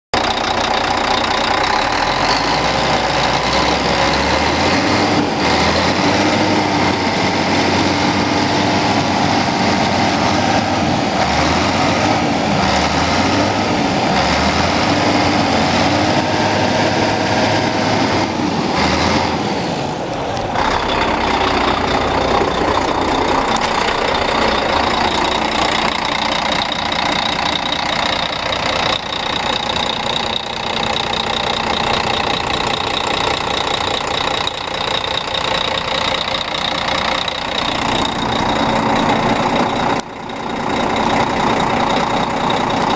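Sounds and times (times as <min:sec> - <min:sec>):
diesel engine idling: 0:00.1 - 0:42.9.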